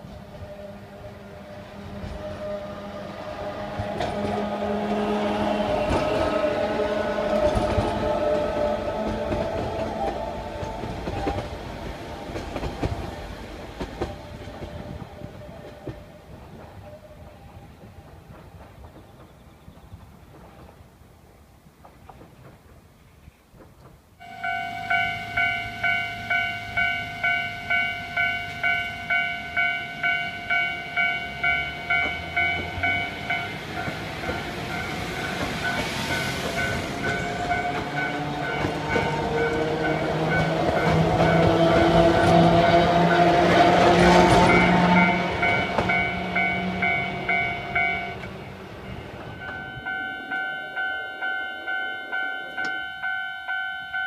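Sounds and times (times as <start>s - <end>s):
electric train passing: 0.0s - 20.8s, 23.8s - 54.0s
level crossing bell ringing: 24.2s - 41.5s, 44.5s - 48.3s, 49.2s - 54.0s.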